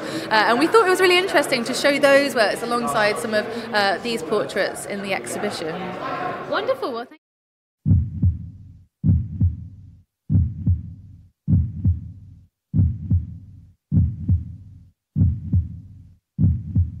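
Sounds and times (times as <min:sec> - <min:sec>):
heartbeat double thump: 0:07.8 - 0:17.0.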